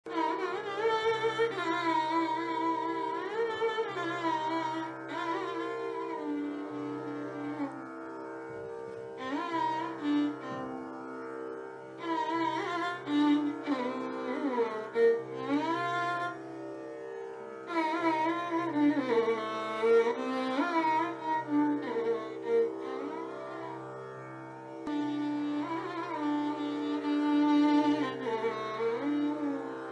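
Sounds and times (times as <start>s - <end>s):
ornamented string melody: 0.0s - 29.9s.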